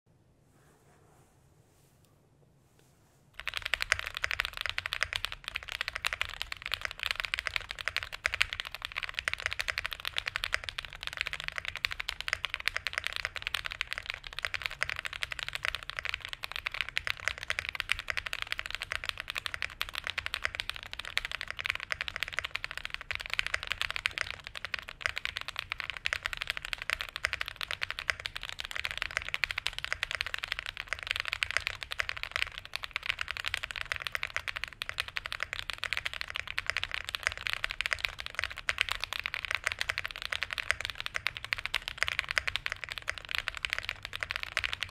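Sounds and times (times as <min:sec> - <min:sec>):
mechanical keyboard typing: 0:03.4 - 0:44.9.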